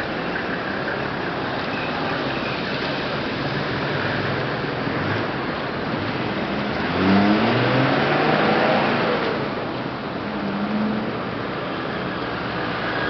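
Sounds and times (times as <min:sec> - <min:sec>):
city road traffic noise: 0:00.0 - 0:13.0
vehicle engine accelerating: 0:01.9 - 0:09.7.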